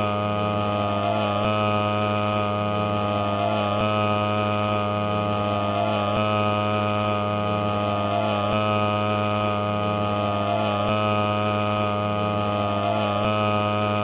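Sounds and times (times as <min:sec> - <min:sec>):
loud hum of held tones: 0:00.0 - 0:14.0.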